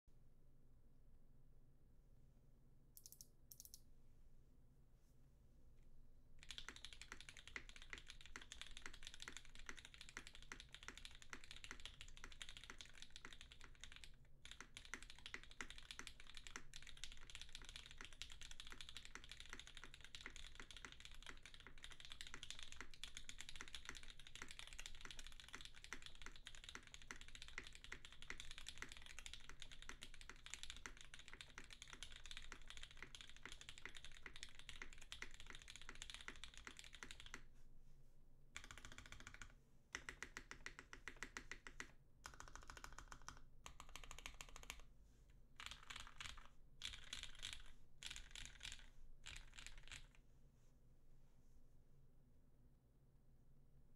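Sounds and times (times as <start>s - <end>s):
mechanical keyboard typing: 3.0s - 3.8s, 6.4s - 37.5s, 38.6s - 44.8s, 45.6s - 50.2s.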